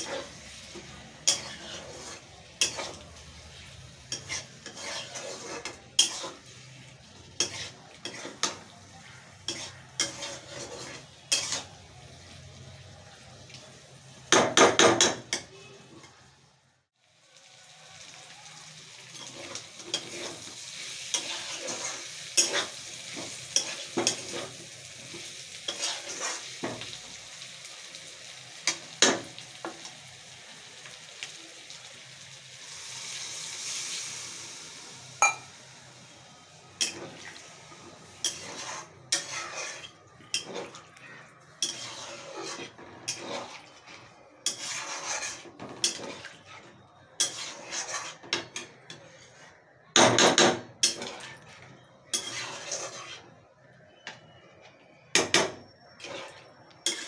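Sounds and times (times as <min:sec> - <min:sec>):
metal spatula scraping a pan: 0:00.0 - 0:12.4, 0:19.0 - 0:28.0, 0:36.8 - 0:54.6, 0:55.2 - 0:57.0
food sizzling: 0:00.0 - 0:57.0
water pouring into pan: 0:31.8 - 0:35.5.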